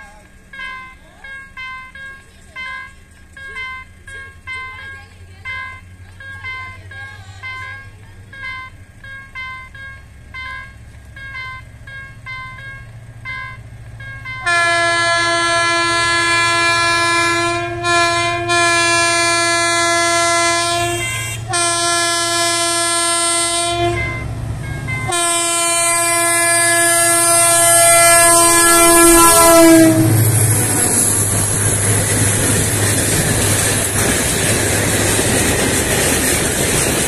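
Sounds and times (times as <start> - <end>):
level crossing warning bell: 0.0 - 35.9
locomotive low rumble: 0.0 - 37.0
locomotive air horn blasts: 14.4 - 24.3, 25.0 - 30.6.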